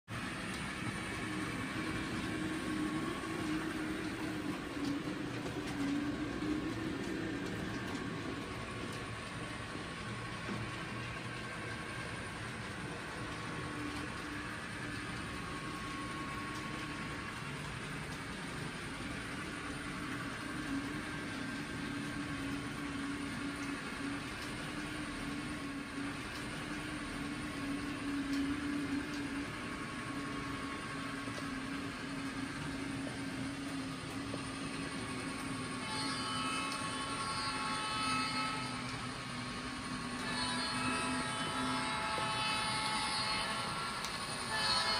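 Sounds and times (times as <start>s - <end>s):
model train diesel hum: 0.1s - 44.9s.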